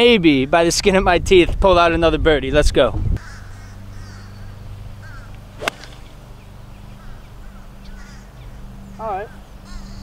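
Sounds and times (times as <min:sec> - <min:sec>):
golf club striking ball: 0:05.3 - 0:06.5.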